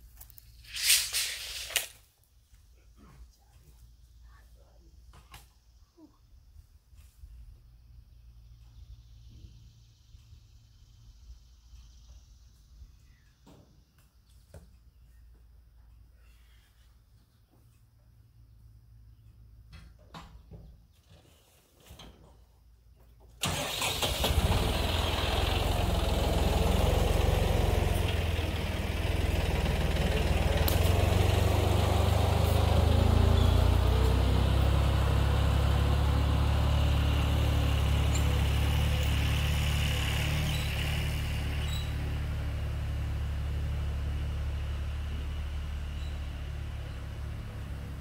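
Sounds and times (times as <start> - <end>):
sawmill engine running: 23.4 - 48.0.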